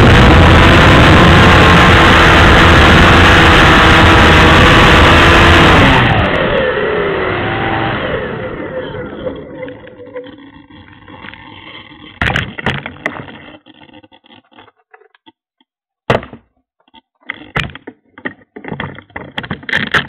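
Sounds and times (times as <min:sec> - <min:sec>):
drone motors buzzing: 0:00.0 - 0:12.3.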